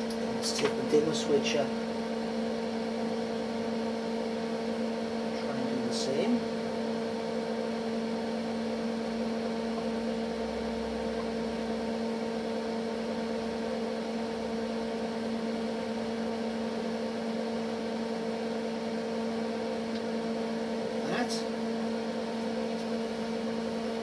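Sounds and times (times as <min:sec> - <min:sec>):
electrical mains hum: 0:00.0 - 0:24.0.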